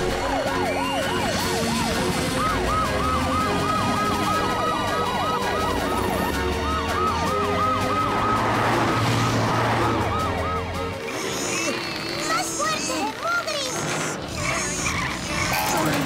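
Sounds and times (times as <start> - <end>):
cartoon sirens wailing: 0.0 - 12.8.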